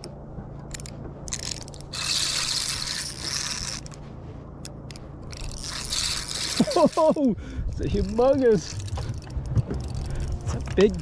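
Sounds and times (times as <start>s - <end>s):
light reel clicks: 0.0s - 4.0s, 4.6s - 11.0s
fishing reel scraping: 0.7s - 4.0s, 4.9s - 11.0s.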